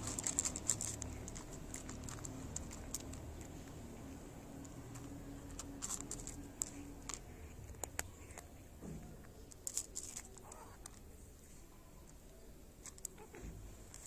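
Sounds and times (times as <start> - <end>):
cat chewing dry kibble: 0.0 - 11.1.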